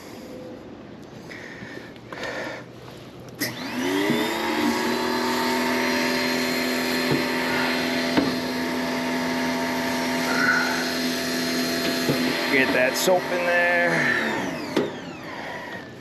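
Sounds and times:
pressure washer motor humming: 3.4 - 16.0.

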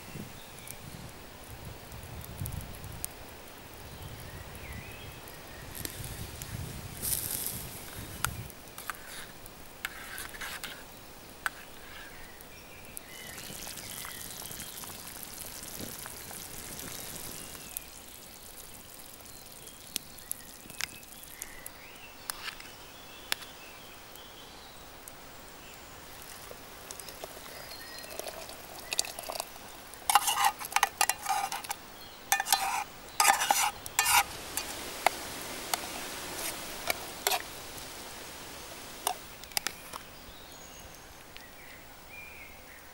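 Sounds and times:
sauce sizzling in a metal tin: 4.9 - 23.6, 26.1 - 40.4
utensil scraping metal tin: 8.8 - 10.8, 30.1 - 34.7, 35.7 - 37.5.

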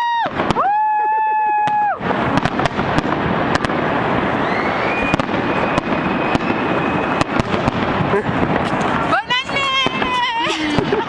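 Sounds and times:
crackling rumble of fireworks: 0.0 - 11.0
sharp firework bangs: 0.0 - 11.0
thin high whistle: 4.4 - 7.2.

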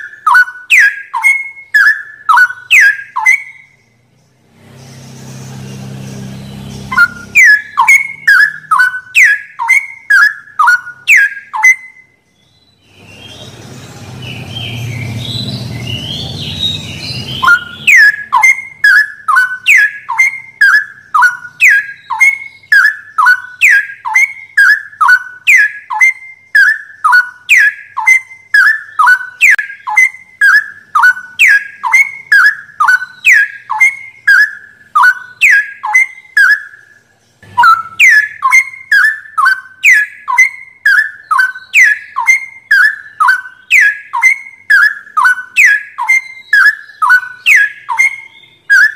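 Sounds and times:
songbird whistled call: 0.0 - 4.0, 4.8 - 48.9
lower noisy sound: 12.9 - 17.9.

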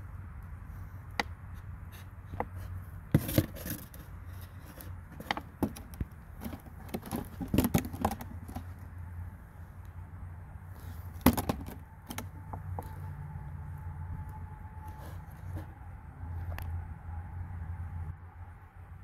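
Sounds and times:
plastic jug crinkling and clicking: 5.1 - 8.8.

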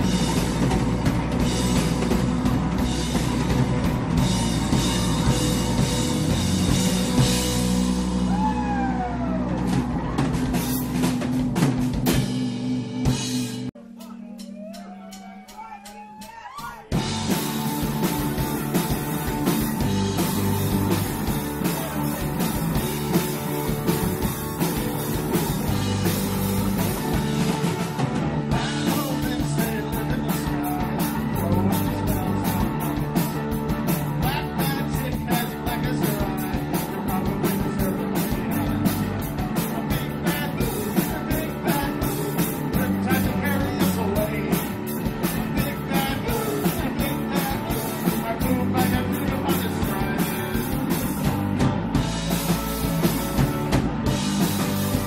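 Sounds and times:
drums driving beat: 0.0 - 55.0
electric guitars: 0.0 - 55.0
man singing into microphone: 28.7 - 32.8, 34.2 - 39.0, 39.6 - 51.2.

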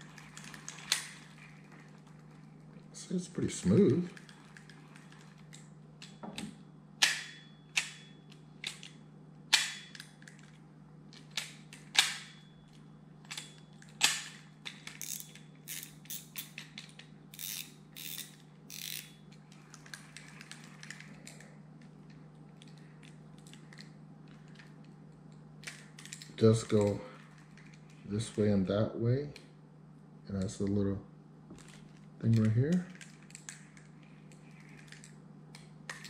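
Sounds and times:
fishing reel clicking: 15.0 - 16.6, 17.3 - 19.1.

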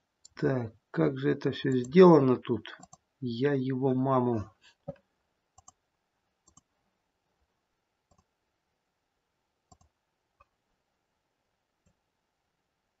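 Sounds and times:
computer mouse clicks: 2.8 - 3.0, 5.6 - 5.8, 6.4 - 6.7, 8.1 - 8.3, 9.7 - 10.5.

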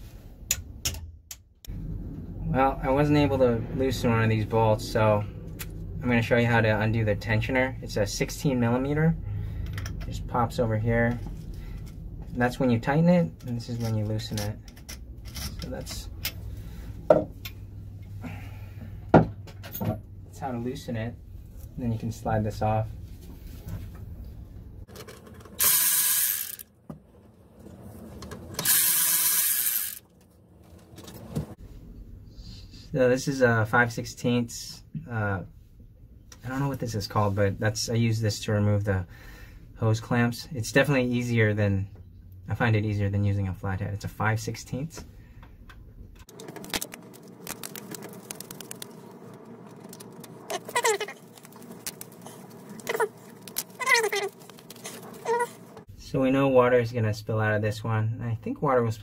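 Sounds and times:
cordless electric ratchet running: 25.6 - 26.7, 28.6 - 30.1.

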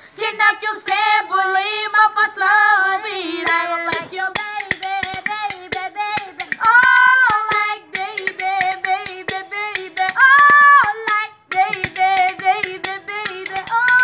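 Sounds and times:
woman singing high notes: 8.0 - 14.0.

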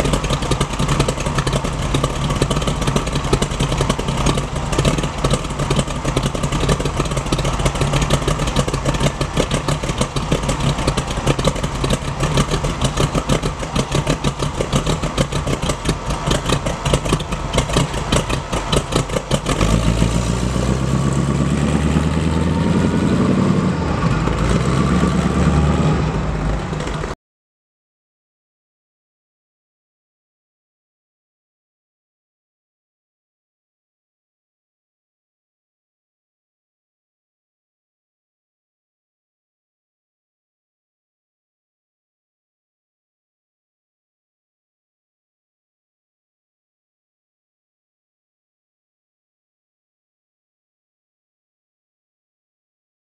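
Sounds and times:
car engine idling and revving: 0.0 - 27.2.

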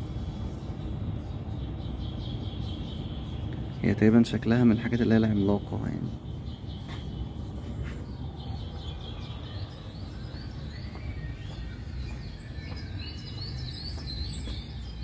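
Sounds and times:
steady low rumble: 0.0 - 15.0
bird chirps and whistles: 8.9 - 15.0.

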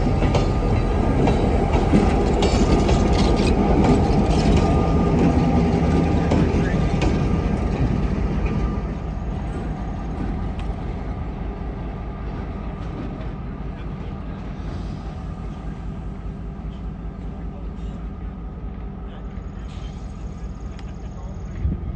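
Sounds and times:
diesel locomotives rumbling: 0.0 - 21.9.

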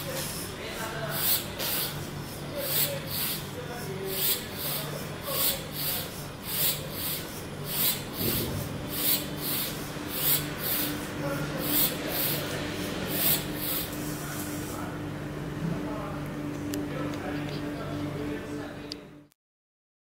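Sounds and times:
rhythmic hissing scrape: 0.0 - 15.0
robot drive motors humming: 0.0 - 19.1.

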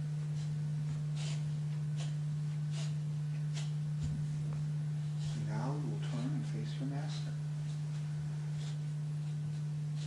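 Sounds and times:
low electrical hum: 0.0 - 10.0
soft footstep scuffs: 3.4 - 5.5.

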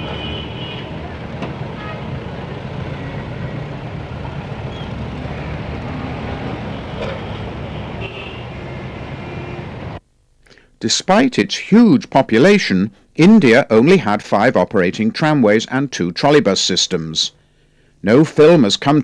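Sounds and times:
city street traffic rumble: 0.0 - 10.0.

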